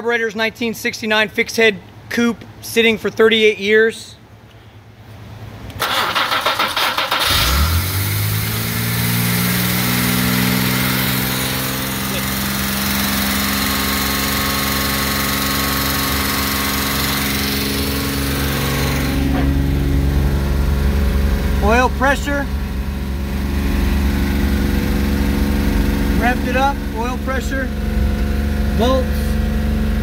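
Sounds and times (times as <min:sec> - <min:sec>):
engine starter cranking: 0:05.8 - 0:08.3
car engine running: 0:07.1 - 0:30.0.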